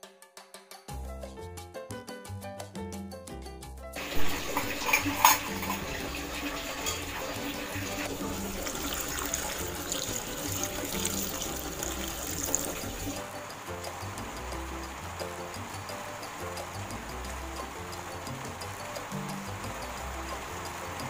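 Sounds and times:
water splashing in a basin: 0:04.0 - 0:21.0.

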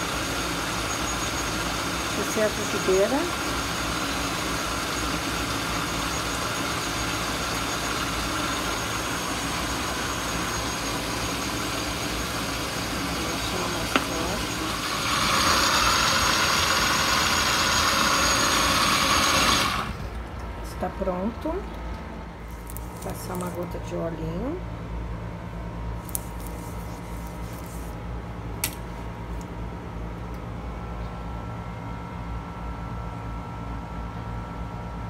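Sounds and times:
kitchen appliance motor whirring: 0:00.0 - 0:20.0.

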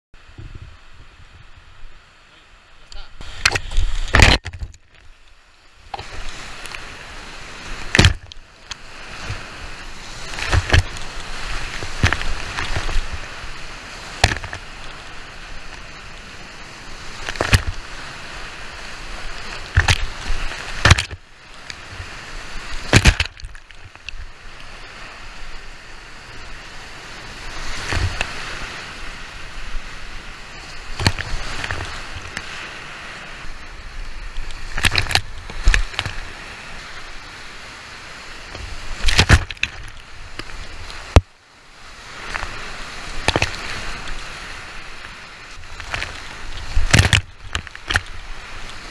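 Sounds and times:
splashes and knocks on a boat: 0:03.2 - 0:05.0, 0:07.7 - 0:08.4, 0:10.2 - 0:13.2, 0:14.1 - 0:14.6, 0:17.1 - 0:17.8, 0:19.5 - 0:21.2, 0:21.8 - 0:24.2, 0:27.7 - 0:28.6, 0:30.9 - 0:32.6, 0:34.4 - 0:36.2, 0:38.6 - 0:41.3, 0:43.2 - 0:44.2, 0:45.0 - 0:48.3
whitewater rapids rushing: 0:05.9 - 0:41.2.

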